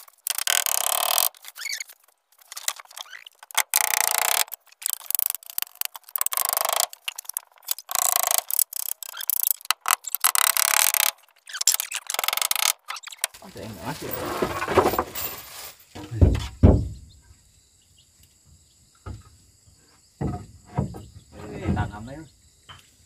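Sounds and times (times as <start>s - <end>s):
hand tool scraping wood: 0.0s - 15.7s.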